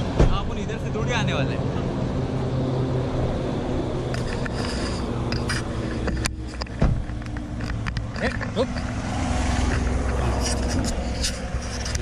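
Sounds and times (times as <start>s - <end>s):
highway traffic noise: 0.0s - 12.0s
vehicle engine humming: 0.0s - 12.0s
camera handling clicks and scrapes: 4.1s - 9.0s, 9.6s - 12.0s.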